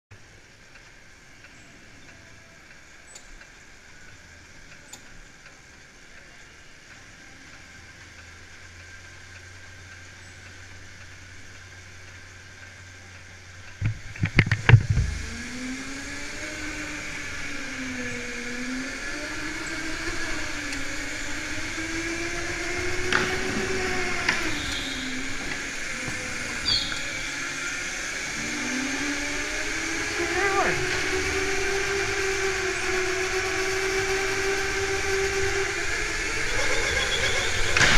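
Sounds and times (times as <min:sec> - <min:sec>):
low steady hum: 0:00.1 - 0:37.9
high whine: 0:06.0 - 0:37.9
go-kart motor whining: 0:08.4 - 0:37.9.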